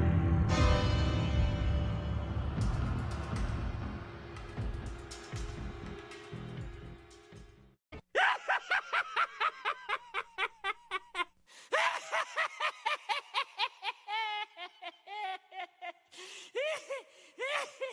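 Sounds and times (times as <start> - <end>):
high-pitched cackling laugh: 8.2 - 16.1.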